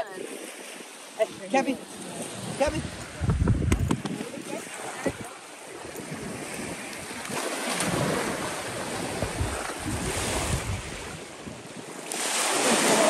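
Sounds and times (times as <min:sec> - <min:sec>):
small waves washing onto beach: 0:00.0 - 0:13.0
wind buffeting microphone: 0:02.1 - 0:11.9.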